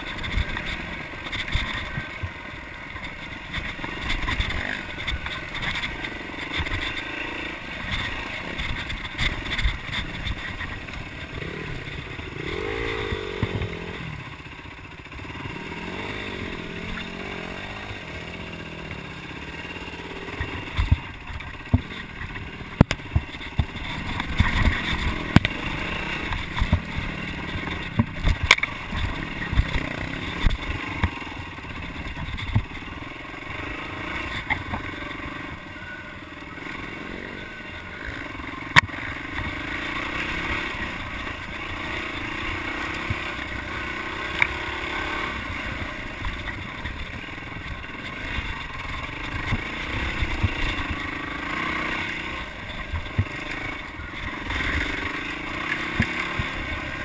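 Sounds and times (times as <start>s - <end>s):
bike knocks and rattles: 0.0s - 33.0s
dirt bike engine: 0.0s - 57.0s.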